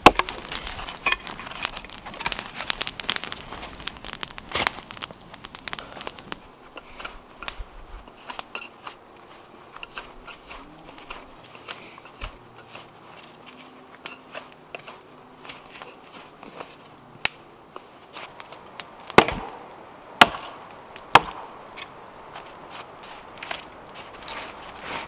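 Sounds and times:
wood being chopped: 0.0s - 7.6s, 18.2s - 19.6s, 20.2s - 22.6s
light wood cracks and clicks: 0.0s - 19.6s.

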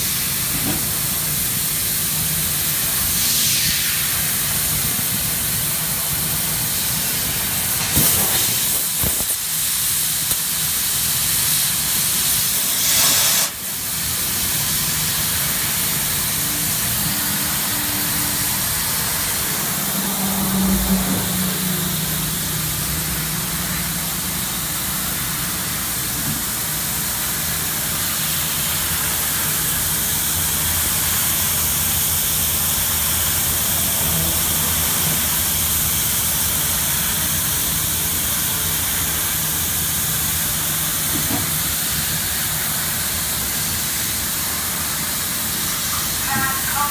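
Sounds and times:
gas jet hiss: 0.0s - 46.9s
low machine hum: 15.3s - 26.1s.

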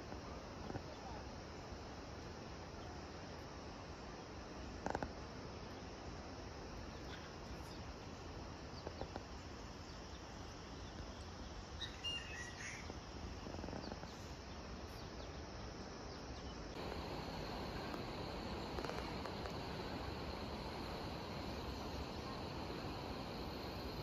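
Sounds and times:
background hiss: 0.0s - 24.0s
high insect drone: 0.0s - 24.0s
insects: 0.0s - 24.0s
bird chirp: 9.9s - 17.7s.

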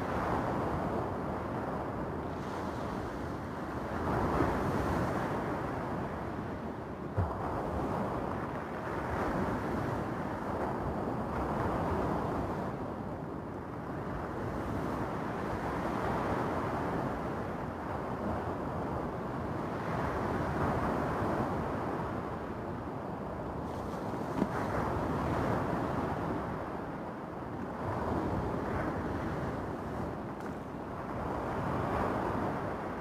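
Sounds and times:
surf washing over cobble beach: 23.4s - 33.0s.

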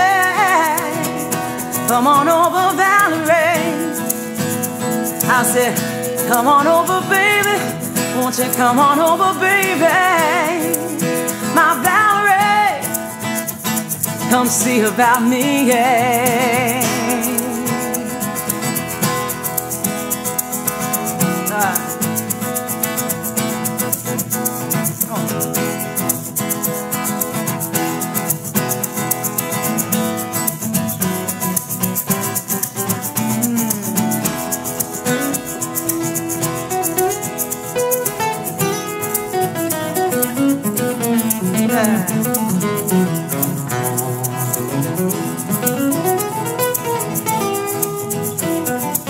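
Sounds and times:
person singing: 0.0s - 18.9s, 21.0s - 22.4s, 24.7s - 26.2s, 32.0s - 49.0s
acoustic guitar strumming: 0.0s - 49.0s
shaker: 0.0s - 49.0s.

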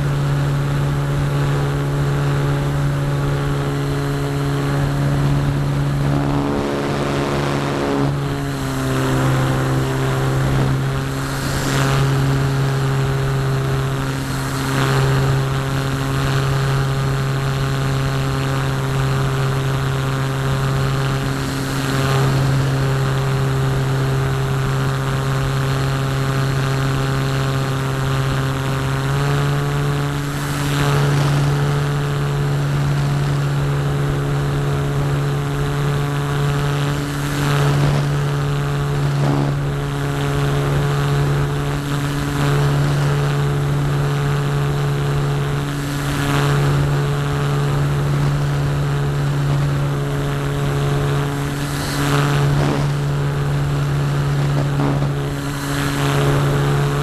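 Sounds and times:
wind noise gusts: 0.0s - 18.3s, 29.2s - 57.0s
electric motor and propeller drone: 0.0s - 57.0s.

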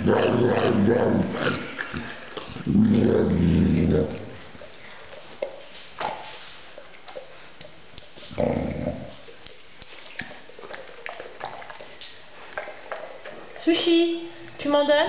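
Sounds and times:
dog whining grumbles: 8.4s - 9.1s.

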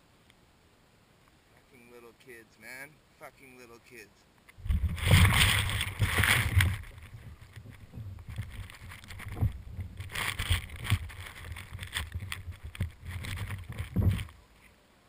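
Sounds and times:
grass brushing camera housing: 4.5s - 14.7s
wind buffeting microphone: 4.6s - 14.3s
camera bump: 4.6s - 14.4s.

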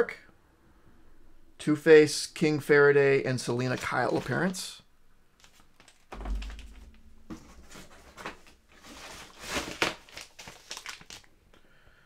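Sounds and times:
plastic rustling and crinkling: 3.6s - 4.6s, 5.4s - 11.4s
dull thump: 6.1s - 8.0s.

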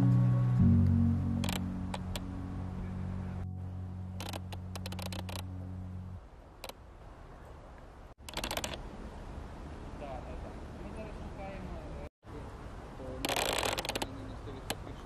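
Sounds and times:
steady low drone: 0.0s - 6.2s.

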